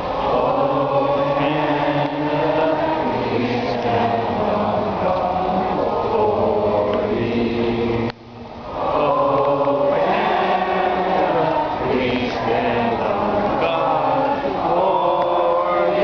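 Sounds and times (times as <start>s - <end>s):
voices singing a slow chant: 0.0s - 16.0s.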